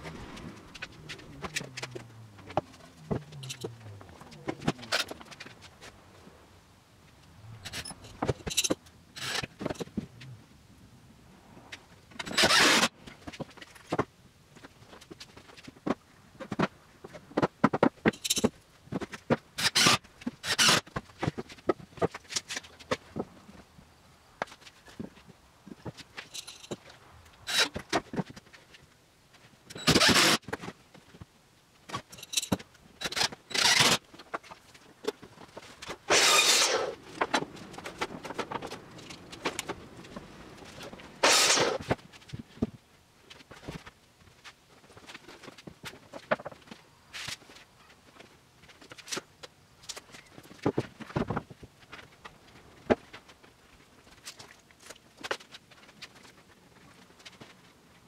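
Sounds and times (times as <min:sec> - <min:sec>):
tools and wood parts clattering: 0:00.0 - 0:05.9, 0:07.5 - 0:10.1, 0:12.2 - 0:23.3, 0:24.4 - 0:28.8, 0:31.9 - 0:57.5
noisy bursts: 0:00.0 - 0:10.6, 0:35.8 - 0:42.0.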